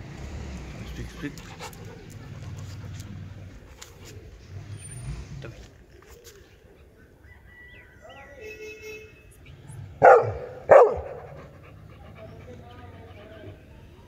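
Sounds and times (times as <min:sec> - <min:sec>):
dog barking: 0:10.0 - 0:11.4.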